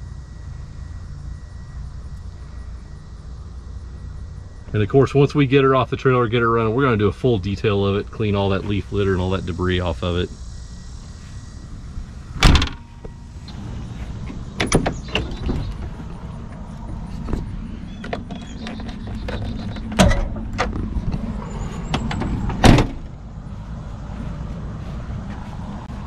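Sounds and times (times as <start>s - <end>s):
steady low rumble: 0.0s - 26.0s
car doors clunking and thumping: 12.4s - 23.2s.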